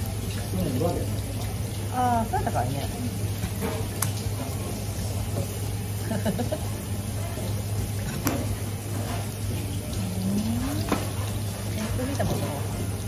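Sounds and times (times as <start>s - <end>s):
machinery humming: 8.6s - 13.0s.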